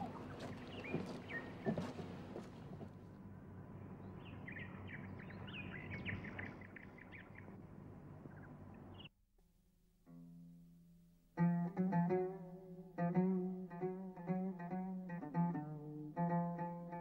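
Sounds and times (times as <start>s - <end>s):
faint held music tones: 0.0s - 9.1s
small birds chirping: 0.0s - 9.1s
outdoor background hiss: 0.0s - 17.0s.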